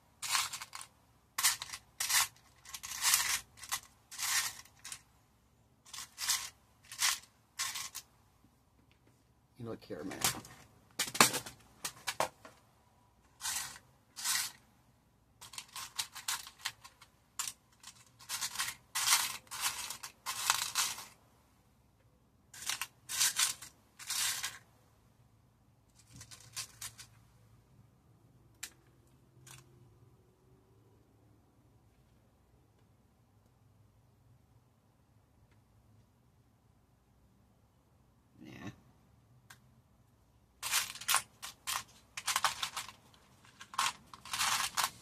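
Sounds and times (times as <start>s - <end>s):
plastic boxes rattling and clicking: 40.6s - 45.0s.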